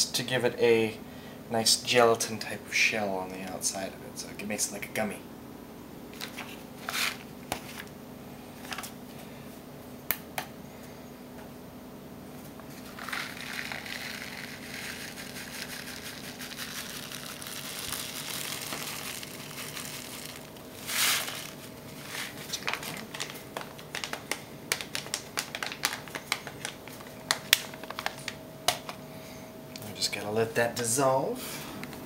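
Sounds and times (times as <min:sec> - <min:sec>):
flakes rustling: 0:12.7 - 0:28.3.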